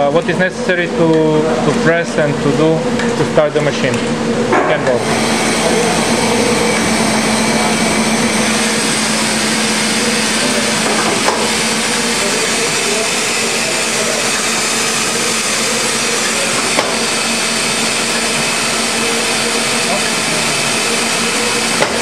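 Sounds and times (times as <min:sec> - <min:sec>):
steady hum: 0:00.0 - 0:22.0
printing press clatter: 0:21.6 - 0:22.0.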